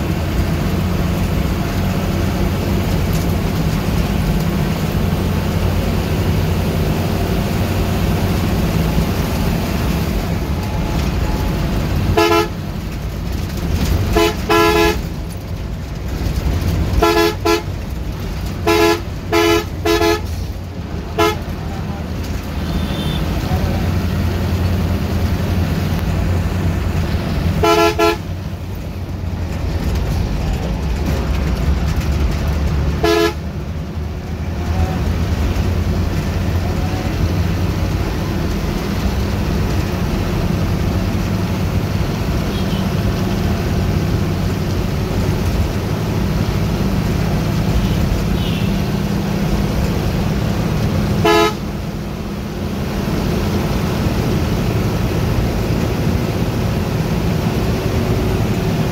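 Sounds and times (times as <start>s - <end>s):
bus engine running: 0.0s - 58.9s
vehicle horn honks: 12.1s - 12.6s, 14.1s - 15.1s, 17.0s - 17.7s, 18.6s - 20.4s, 21.1s - 21.6s, 22.6s - 23.4s, 27.6s - 28.3s, 33.0s - 33.4s, 42.5s - 42.9s, 47.8s - 48.8s, 51.2s - 51.7s.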